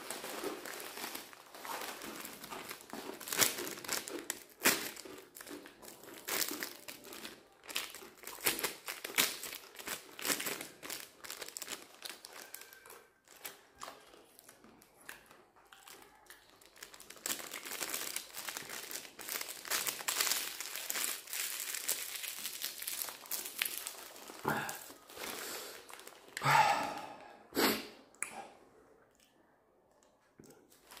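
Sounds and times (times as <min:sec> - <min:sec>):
plastic noodle packet crinkling: 0:00.0 - 0:26.4, 0:30.7 - 0:31.0.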